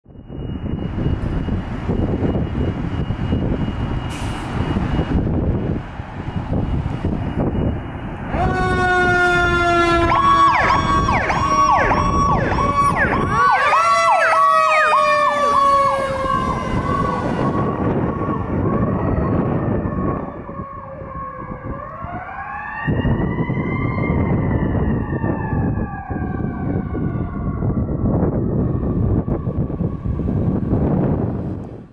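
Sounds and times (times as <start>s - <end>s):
electronic yelp siren: 0.0s - 31.8s
wailing siren winding up and down: 0.1s - 31.8s
truck engine: 0.2s - 20.6s.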